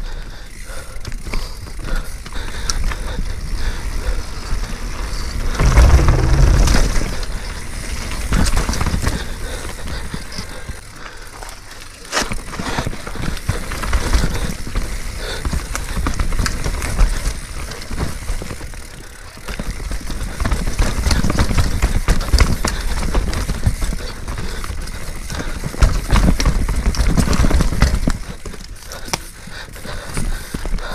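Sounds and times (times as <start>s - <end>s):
bike rattling over bumps: 0.0s - 30.9s
bike tyres on dirt and rock: 0.0s - 30.9s
rumble on the microphone: 5.5s - 7.6s.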